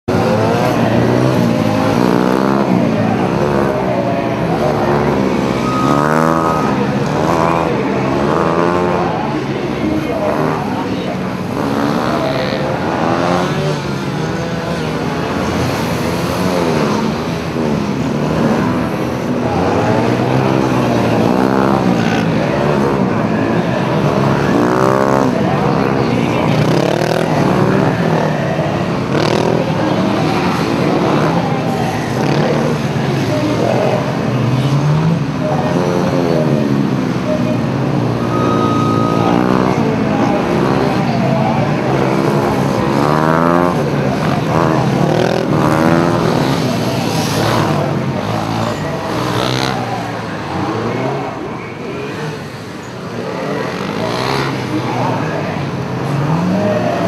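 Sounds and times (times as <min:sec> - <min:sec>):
motorcycle engine revving: 0:00.1 - 0:57.0
steady beep: 0:04.5 - 0:08.6, 0:38.0 - 0:40.7.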